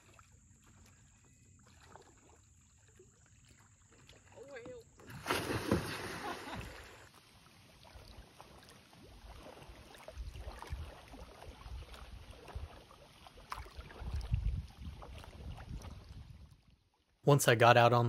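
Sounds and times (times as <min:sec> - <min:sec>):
small waves lapping: 0:00.0 - 0:17.1
clicks and splashes among sticks: 0:10.4 - 0:14.2
wind buffeting microphone: 0:13.9 - 0:16.5.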